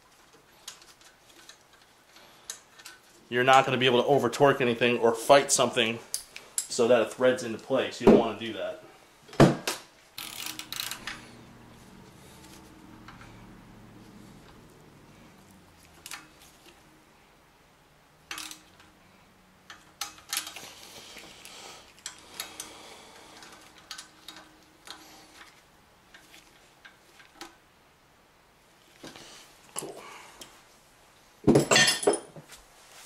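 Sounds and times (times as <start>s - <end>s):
ratchet clicking: 10.2s - 11.4s, 18.3s - 19.0s.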